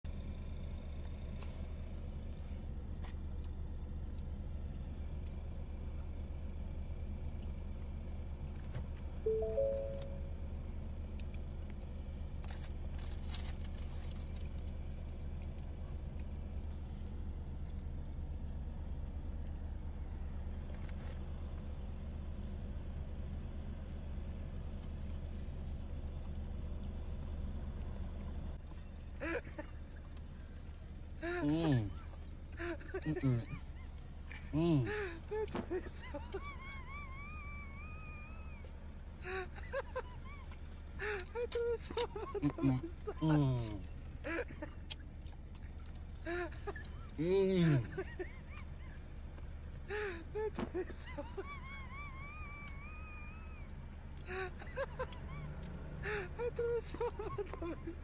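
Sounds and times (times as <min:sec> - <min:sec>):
car idling hum: 0:00.1 - 0:58.0.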